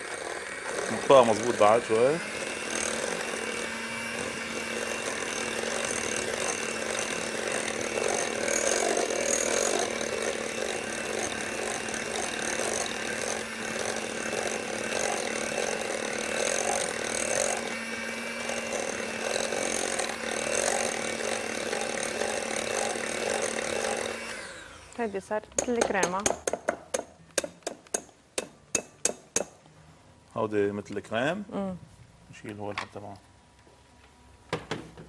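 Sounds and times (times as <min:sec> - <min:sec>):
electric mixer running: 0:00.0 - 0:26.1.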